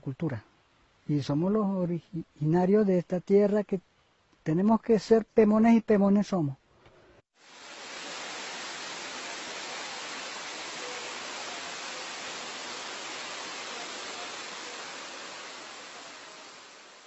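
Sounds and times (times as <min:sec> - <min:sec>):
waterfall rushing: 0:07.4 - 0:17.0.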